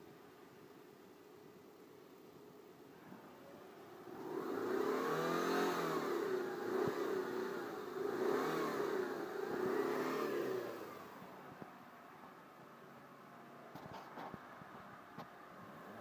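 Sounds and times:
car engine revving: 0:04.0 - 0:11.3.

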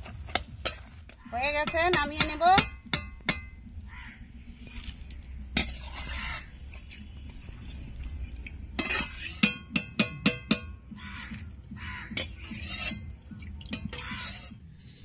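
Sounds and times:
metal ladle tapping frying pan: 0:01.6 - 0:03.7, 0:08.7 - 0:11.5, 0:13.6 - 0:14.3.

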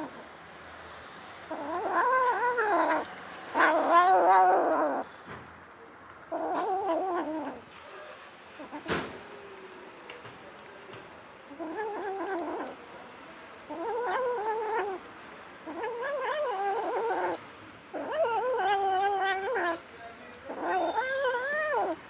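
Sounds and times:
cat meowing: 0:01.5 - 0:05.1, 0:06.3 - 0:07.6, 0:11.5 - 0:12.8, 0:13.7 - 0:15.0, 0:15.7 - 0:17.4, 0:18.0 - 0:19.8, 0:20.5 - 0:22.0.

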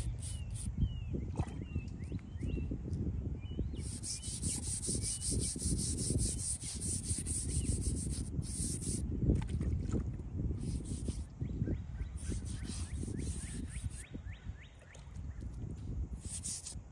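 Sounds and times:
scrub brush scrubbing stone: 0:03.8 - 0:09.0, 0:10.6 - 0:11.2, 0:12.2 - 0:14.0, 0:16.2 - 0:16.8.

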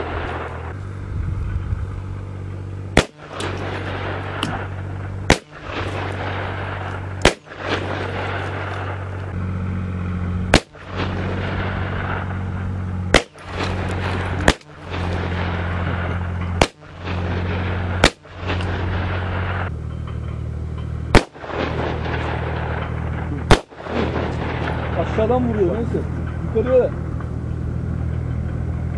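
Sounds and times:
steady low hum: 0:00.0 - 0:28.9
gunshots hitting glass: 0:03.0 - 0:04.7, 0:05.3 - 0:06.4, 0:07.2 - 0:08.9, 0:13.1 - 0:15.4.

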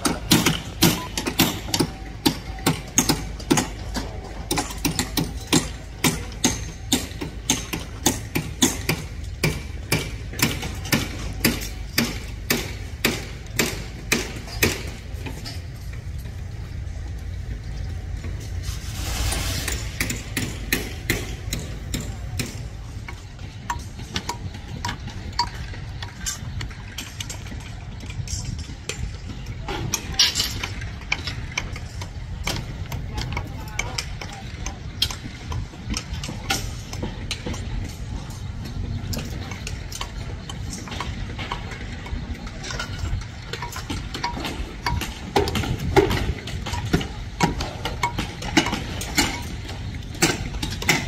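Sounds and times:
hammering: 0:00.0 - 0:15.4, 0:19.3 - 0:27.6.

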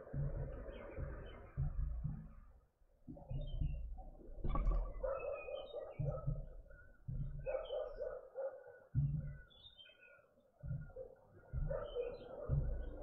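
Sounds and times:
birds chirping: 0:00.0 - 0:02.4, 0:08.9 - 0:13.0.

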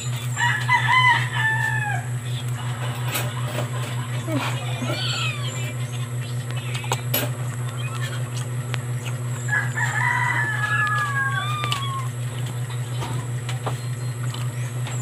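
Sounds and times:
steady low hum: 0:00.0 - 0:15.0
rooster crowing: 0:00.3 - 0:02.2, 0:09.4 - 0:12.2.

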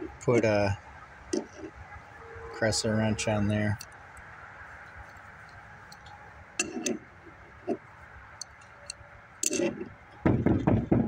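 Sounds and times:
metal tools clinking: 0:06.6 - 0:07.0, 0:08.4 - 0:09.9.

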